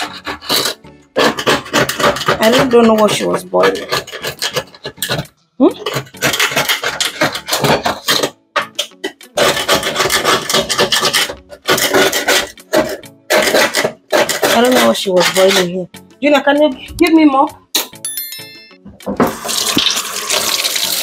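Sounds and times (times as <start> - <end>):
scrubbing cooking pot: 0.0 - 5.2, 5.8 - 15.8.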